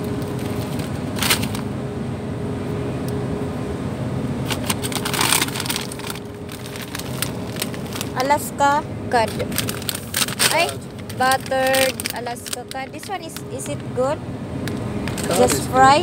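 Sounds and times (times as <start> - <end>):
low background hum: 0.0 - 16.0
plastic bag crinkling: 4.5 - 8.5, 9.2 - 13.7.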